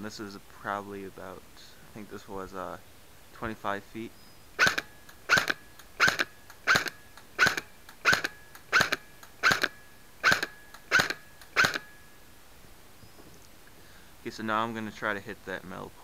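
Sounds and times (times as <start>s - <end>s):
airsoft gun shots: 4.6s - 12.0s.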